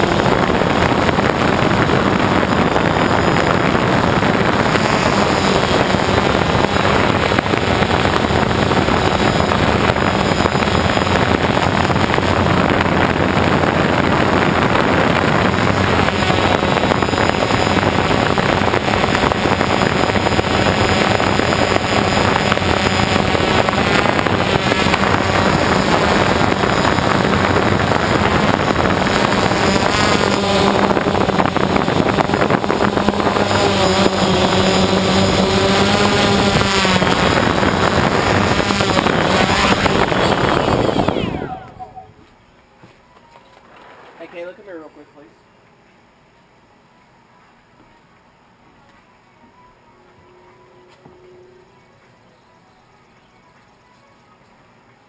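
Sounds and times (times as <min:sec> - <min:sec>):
drone motors and propellers running: 0:00.0 - 0:42.4.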